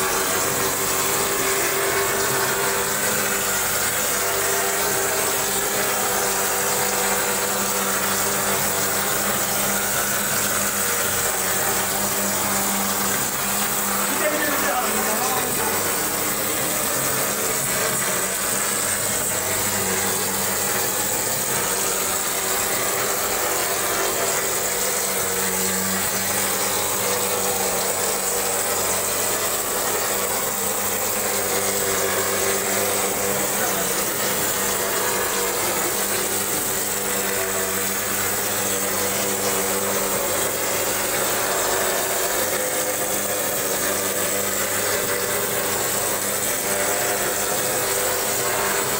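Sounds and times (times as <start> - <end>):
spray gun hissing: 0.0 - 28.9
motor hum: 0.0 - 48.9.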